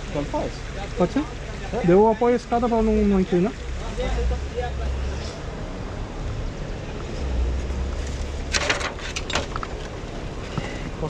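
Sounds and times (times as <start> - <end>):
ladder knocking and rattling: 8.5 - 9.8.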